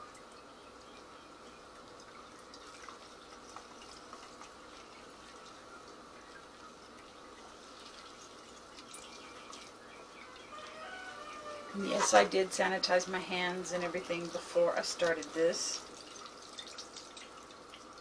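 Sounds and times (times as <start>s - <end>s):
small wet ticks: 0.0s - 10.8s
juice dripping into a bucket: 0.0s - 11.1s, 13.9s - 18.0s.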